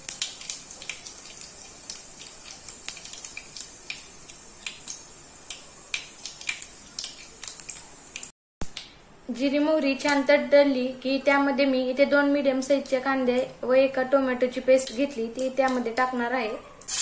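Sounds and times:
seeds sizzling in hot oil: 0.0 - 8.3.

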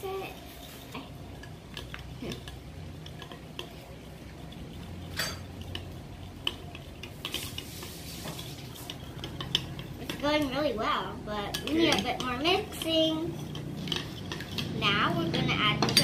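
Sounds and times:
spoon clinking against ceramic bowl: 4.4 - 7.6.

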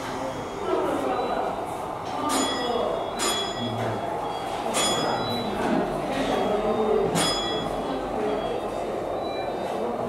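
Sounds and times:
hum of voices: 0.0 - 10.0
bell ringing: 2.3 - 5.5, 7.2 - 8.5.

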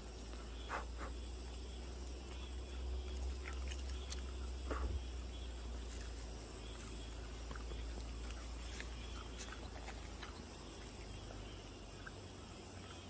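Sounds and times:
insect trill: 0.0 - 13.0
dog chewing grass: 2.3 - 12.2.

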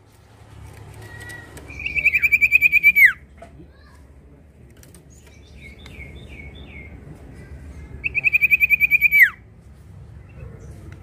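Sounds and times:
bird whistles and trill: 1.3 - 3.2, 8.0 - 9.4.

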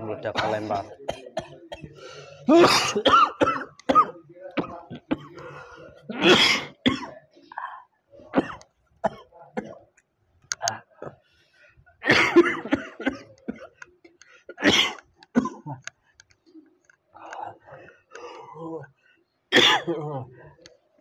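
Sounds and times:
person coughing: 0.4 - 7.2, 12.0 - 13.7, 19.6 - 20.2.

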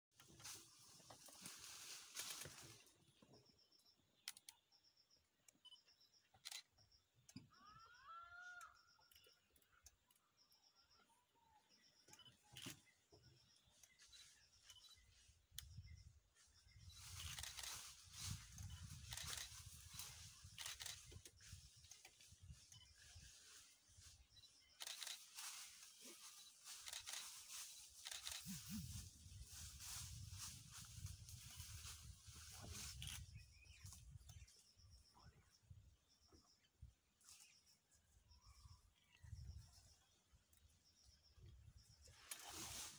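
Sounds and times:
rustling and crunching undergrowth: 0.1 - 3.2, 16.4 - 34.6, 42.1 - 42.9
small birds chirping: 0.2 - 42.9.

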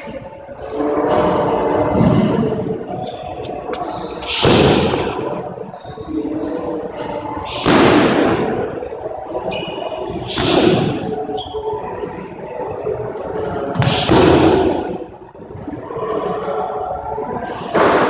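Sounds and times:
sneakers squeaking on wooden floor: 9.5 - 10.0.

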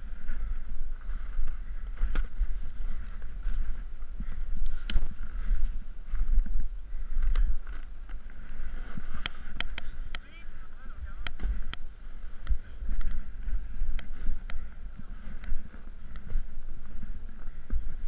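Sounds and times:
wind buffeting microphone: 0.0 - 18.0
snowboard clicks in snow: 4.6 - 5.6, 7.3 - 10.3.

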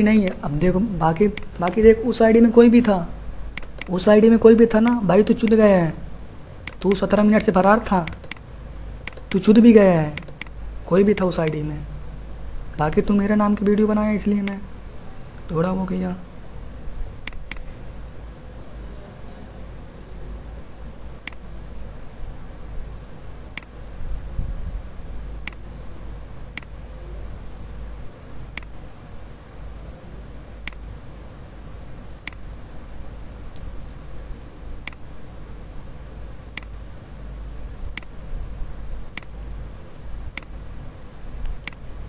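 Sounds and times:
sharp single clicks: 3.6 - 4.0, 6.6 - 9.4, 10.2 - 10.6, 17.2 - 17.7, 21.2 - 21.5, 25.4 - 25.6, 30.6 - 30.8, 32.2 - 32.4, 34.8 - 35.0, 39.1 - 39.4, 41.4 - 41.9.

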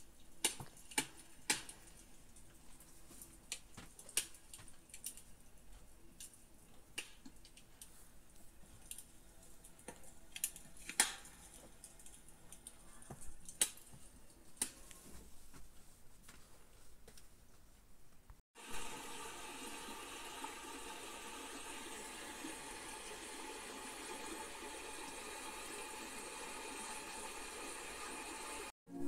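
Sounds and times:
wood fire crackling: 0.0 - 15.5.

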